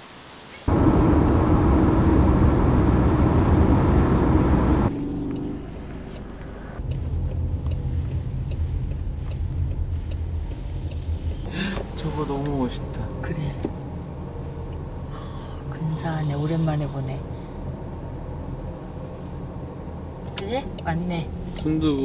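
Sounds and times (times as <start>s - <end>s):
road and wind noise: 0.2s - 22.0s
car cabin rumble: 0.7s - 14.0s.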